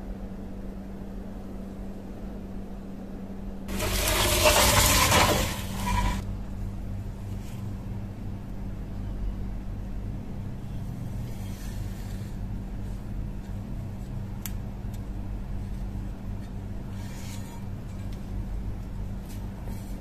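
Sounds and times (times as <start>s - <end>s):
shovel scraping wooden bench: 3.7s - 6.2s.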